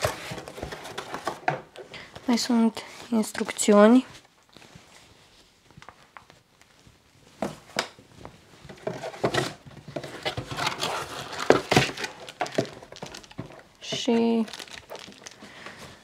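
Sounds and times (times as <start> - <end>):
hands rummaging in cardboard box: 0.0 - 2.5, 8.6 - 16.0.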